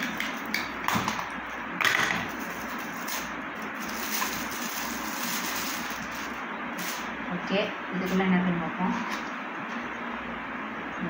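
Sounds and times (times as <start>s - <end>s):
foil gift wrap crinkling and tearing: 2.3s - 7.1s.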